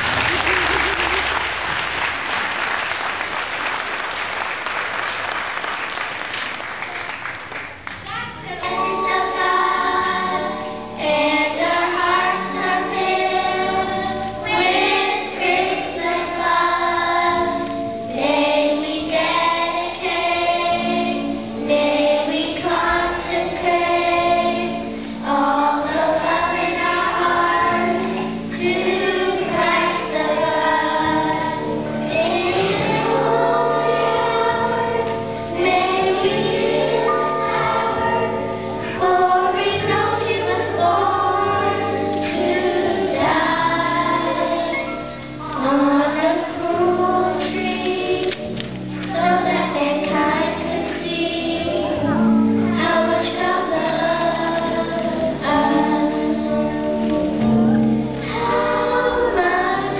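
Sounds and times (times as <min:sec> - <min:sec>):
children's choir singing: 0:00.0 - 0:05.2, 0:08.4 - 0:59.9
audience applause: 0:00.0 - 0:08.1
musical accompaniment: 0:06.5 - 0:59.9.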